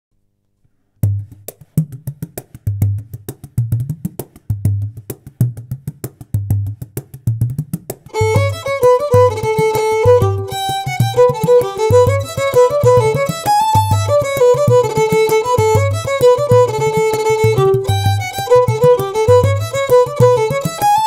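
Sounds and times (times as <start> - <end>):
ticking percussion: 1.0 - 21.0
music melody: 8.1 - 21.0.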